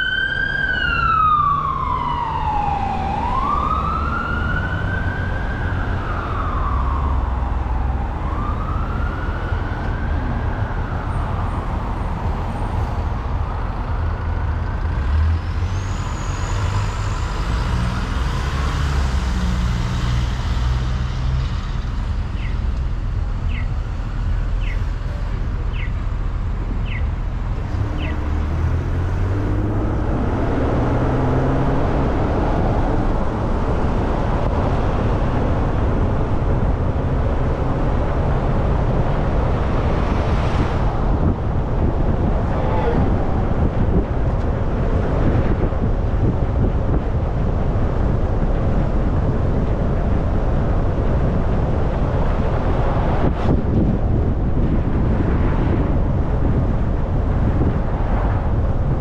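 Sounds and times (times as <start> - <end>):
emergency siren wailing: 0.0 - 12.6
low rumble of car and traffic: 0.0 - 59.0.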